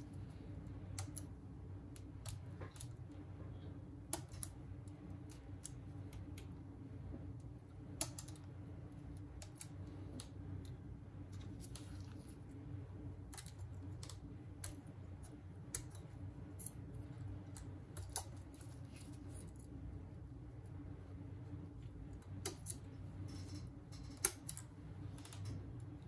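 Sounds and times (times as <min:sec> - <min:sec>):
steady low hum: 0:00.0 - 0:26.0
small tools clicking and tapping: 0:13.3 - 0:19.7, 0:22.2 - 0:25.7.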